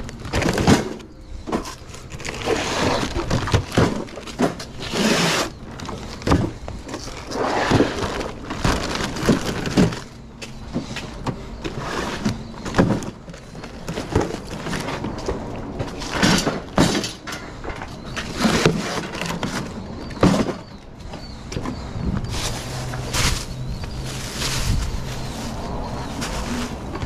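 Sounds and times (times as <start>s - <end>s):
cases thumping on metal cart: 0.2s - 1.8s, 2.8s - 5.2s, 10.7s - 21.8s
plastic wrap crinkling: 8.0s - 10.2s.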